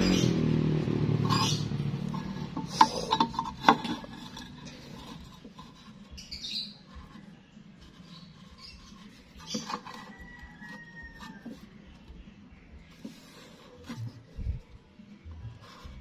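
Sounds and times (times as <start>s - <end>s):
marker pen squeaking on metal: 1.2s - 11.8s.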